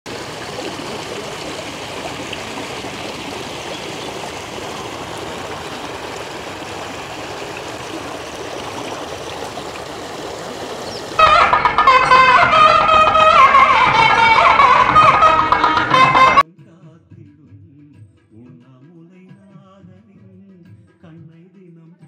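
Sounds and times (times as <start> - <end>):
running water flowing: 0.0 - 16.4.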